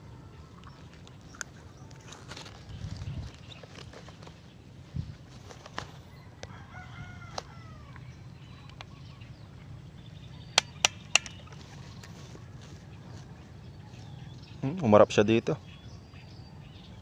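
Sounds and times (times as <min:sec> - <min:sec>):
distant rooster crowing: 0:06.0 - 0:08.5
sharp clicks and snaps: 0:10.6 - 0:11.6.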